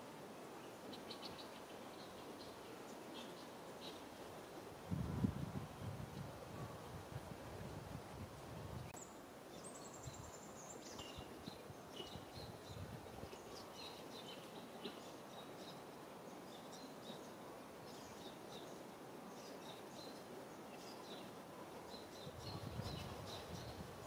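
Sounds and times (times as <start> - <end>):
low background hiss: 0.0 - 24.0
small birds chirping: 0.6 - 4.2, 8.9 - 24.0.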